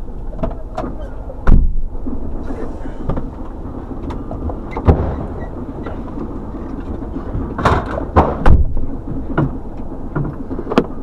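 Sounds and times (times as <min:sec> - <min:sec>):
truck engine rumble: 0:00.0 - 0:11.0
sharp knocks and bangs: 0:04.1 - 0:06.0, 0:07.5 - 0:09.6.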